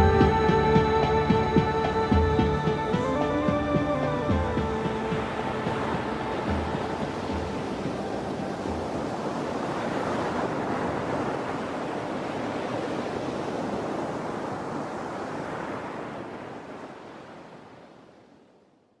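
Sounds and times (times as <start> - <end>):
sea waves washing: 0.0 - 18.3.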